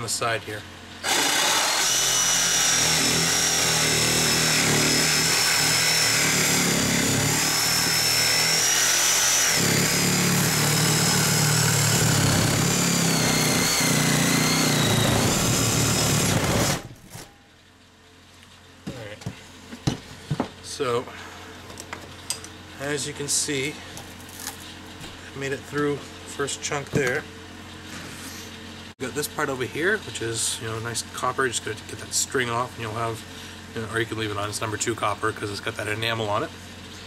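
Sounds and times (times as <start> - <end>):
reciprocating saw cutting metal: 1.0 - 17.0.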